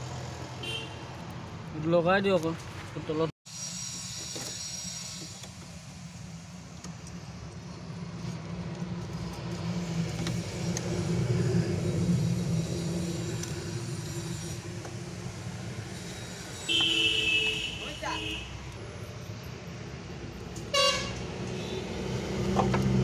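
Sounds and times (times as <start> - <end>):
vehicle engine rumbling past: 7.6 - 16.4.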